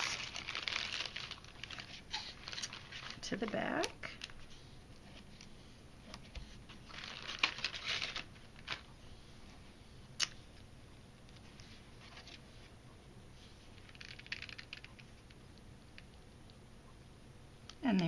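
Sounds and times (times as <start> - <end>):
plastic packet crinkling: 0.0 - 4.4, 6.8 - 8.9, 13.8 - 15.4.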